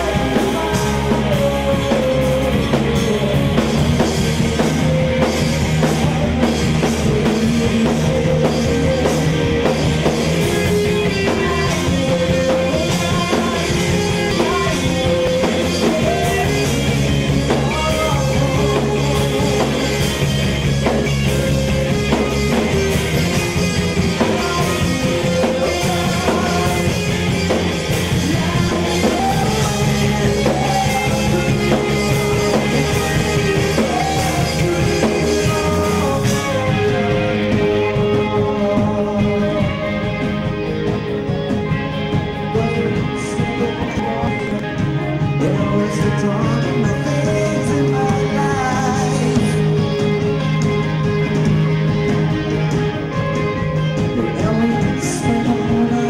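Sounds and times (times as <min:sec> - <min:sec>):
man singing into a microphone: 0:00.0 - 0:20.3, 0:23.6 - 0:40.7, 0:42.3 - 0:50.0, 0:54.0 - 0:56.0
drum kit: 0:00.0 - 0:56.0
electric guitar: 0:00.0 - 0:56.0.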